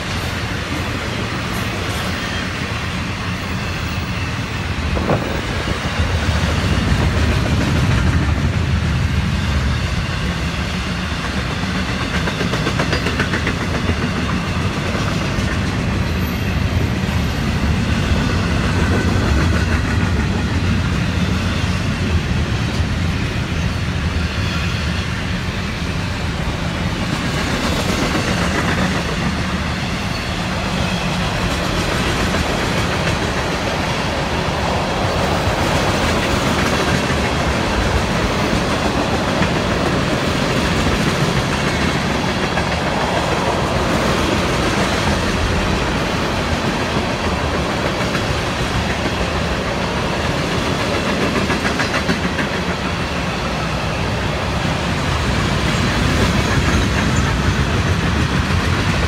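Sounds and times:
freight train cars rolling past: 0.0s - 59.0s.

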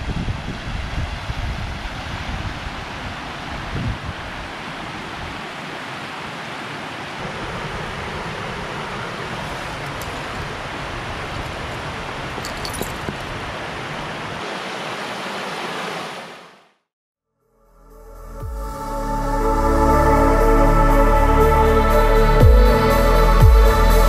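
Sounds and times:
river rushing over rapids: 0.0s - 16.7s.

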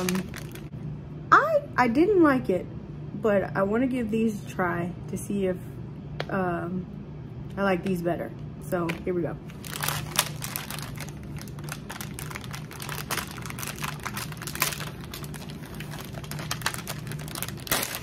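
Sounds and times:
plastic packaging crinkling: 0.0s - 0.7s, 9.4s - 18.0s.

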